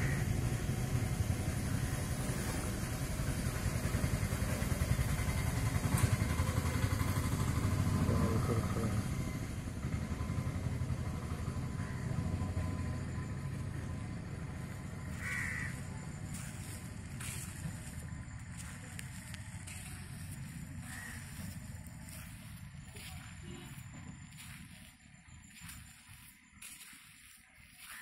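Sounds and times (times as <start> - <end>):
passing vehicle engine rumble: 0.0 - 26.8.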